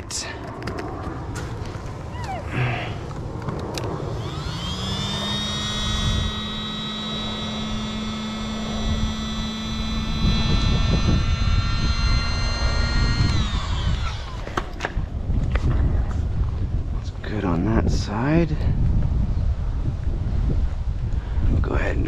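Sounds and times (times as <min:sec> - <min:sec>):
electric air pump whining: 0:01.6 - 0:15.7.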